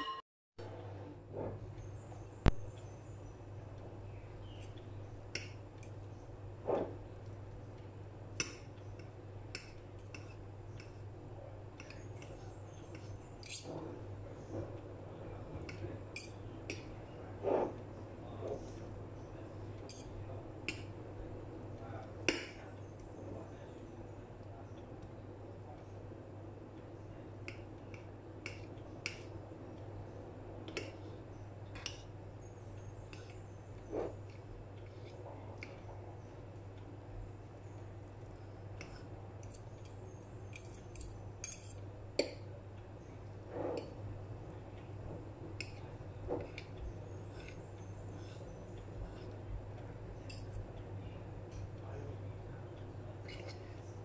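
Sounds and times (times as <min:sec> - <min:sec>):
fork clinking on ceramic plate: 0:39.4 - 0:41.8
forks scraping on ceramic plate: 0:43.5 - 0:44.0, 0:53.2 - 0:53.8.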